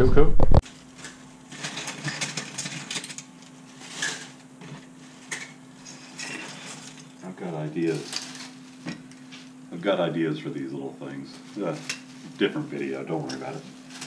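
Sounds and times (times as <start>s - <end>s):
plastic bag crinkling: 0.6s - 7.2s, 7.8s - 9.2s, 11.3s - 14.0s
plastic scraps clattering: 0.6s - 7.2s, 7.8s - 9.3s, 11.3s - 14.0s.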